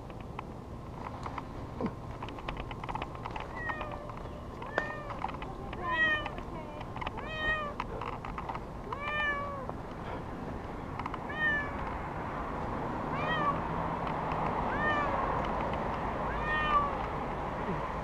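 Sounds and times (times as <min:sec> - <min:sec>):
light clicks and rustles: 0:00.0 - 0:12.0, 0:14.0 - 0:16.1
young cat meowing: 0:03.5 - 0:05.2, 0:05.8 - 0:06.4, 0:07.2 - 0:07.8, 0:08.9 - 0:09.7, 0:11.2 - 0:11.8, 0:13.1 - 0:13.6, 0:14.7 - 0:15.2, 0:16.3 - 0:17.0.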